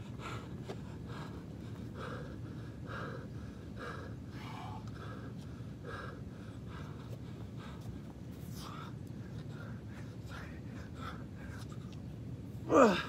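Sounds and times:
man panting: 0.0s - 11.8s, 12.6s - 13.0s.

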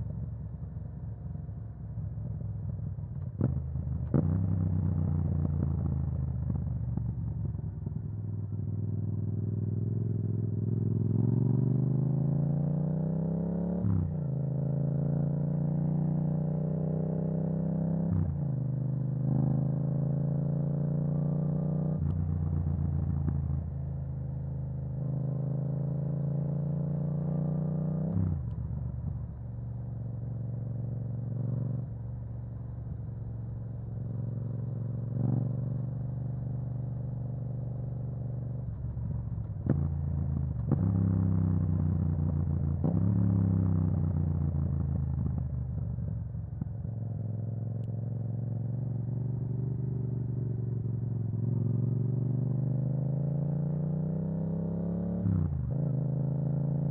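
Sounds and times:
motorcycle engine revving: 34.0s - 56.9s.

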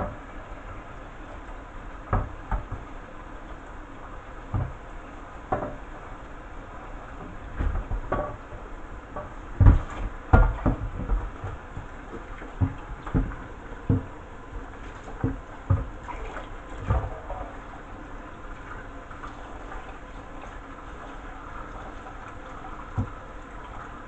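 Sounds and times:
tap water running into a sink: 7.2s - 24.0s
knocks against a metal sink: 9.2s - 11.6s.

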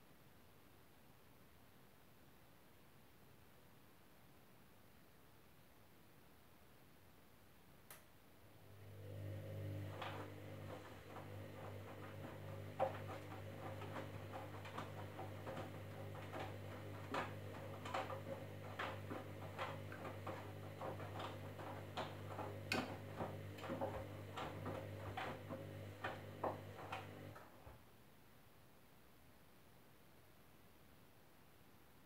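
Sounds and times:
washing machine motor hum: 8.5s - 27.5s.

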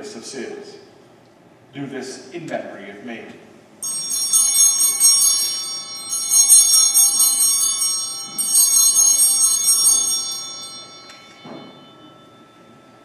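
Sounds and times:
altar bells jingling: 3.8s - 13.0s.

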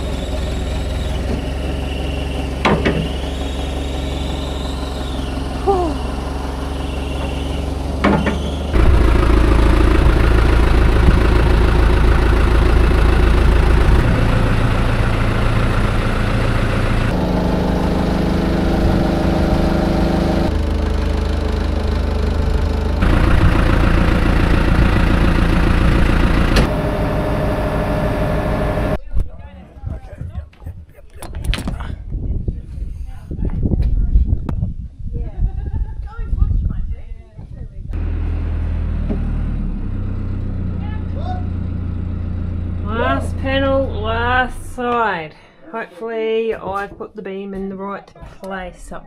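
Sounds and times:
tractor engine running: 0.0s - 29.0s, 37.9s - 45.3s.

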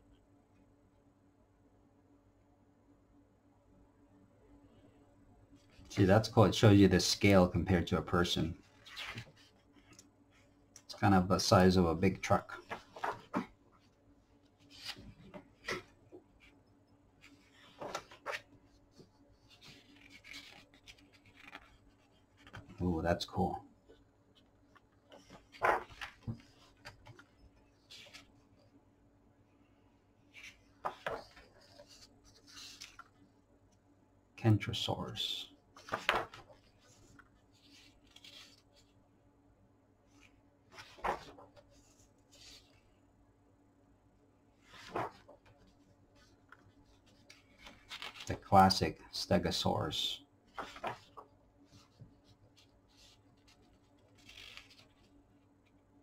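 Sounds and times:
book pages turning: 8.6s - 10.1s, 12.3s - 13.6s, 14.5s - 16.6s, 17.2s - 22.9s, 24.8s - 28.4s, 30.3s - 33.3s, 35.8s - 38.9s, 40.2s - 42.8s, 44.7s - 48.5s, 50.5s - 55.8s
paper rustling: 8.6s - 10.5s, 12.3s - 14.0s, 14.6s - 16.6s, 17.2s - 22.8s, 25.0s - 28.5s, 30.3s - 33.3s, 35.8s - 39.0s, 40.2s - 42.9s, 44.7s - 48.5s, 50.5s - 55.2s
page flip: 8.7s - 10.1s, 12.6s - 13.5s, 14.6s - 15.9s, 17.2s - 22.8s, 25.1s - 28.3s, 30.4s - 33.2s, 35.8s - 38.9s, 40.2s - 42.8s, 44.7s - 48.4s, 50.5s - 55.1s.

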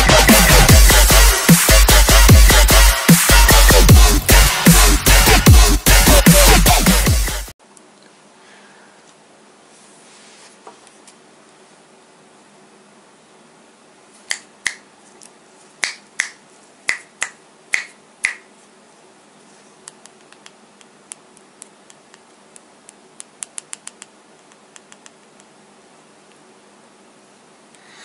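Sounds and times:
finger snaps: 14.2s - 14.9s, 15.8s - 18.5s, 19.8s - 25.6s.

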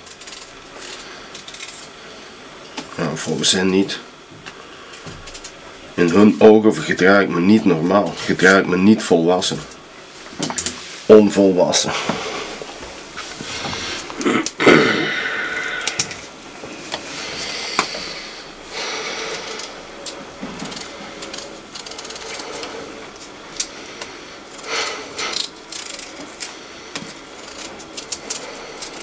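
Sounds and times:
knife peeling potato: 19.0s - 29.0s.

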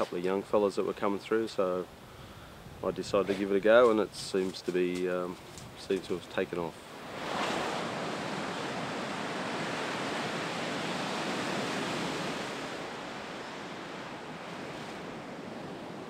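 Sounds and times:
ocean waves breaking: 6.8s - 16.0s.

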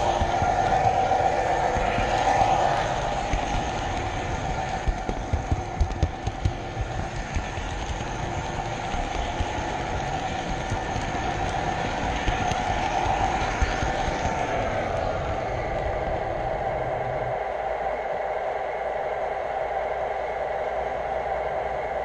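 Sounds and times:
wheels clicking over rail joints: 0.0s - 15.9s.

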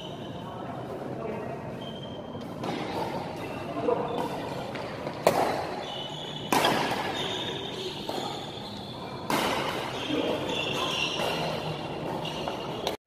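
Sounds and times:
shoes squeaking on court: 1.7s - 13.0s
racket striking shuttlecock: 4.2s - 5.8s, 6.4s - 8.5s, 9.2s - 10.1s, 10.7s - 13.0s.

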